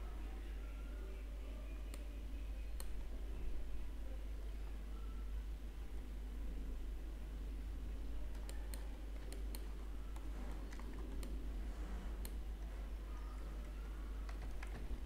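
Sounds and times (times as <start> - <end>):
faint low hum: 0.0 - 15.0.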